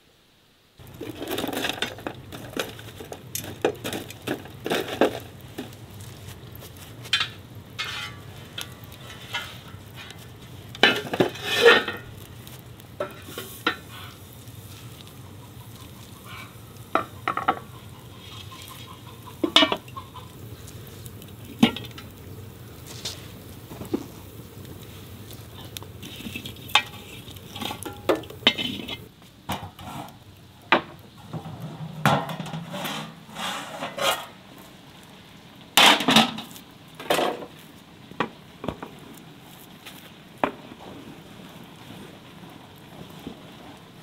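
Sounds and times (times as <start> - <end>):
spoon scraping a pot: 7.2 - 8.3, 10.8 - 12.1, 25.6 - 29.1, 32.3 - 34.3.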